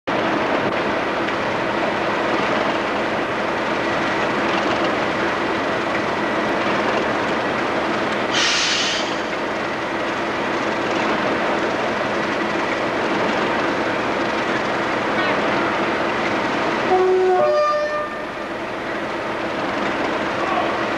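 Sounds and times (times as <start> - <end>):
diesel locomotive idling: 0.1 - 20.9
air hiss: 8.3 - 9.3.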